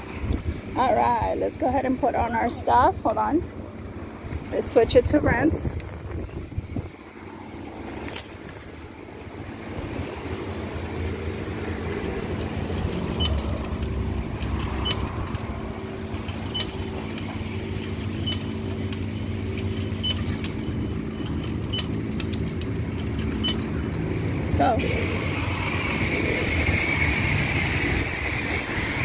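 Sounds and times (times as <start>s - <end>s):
high-pressure pump humming: 10.1s - 29.0s.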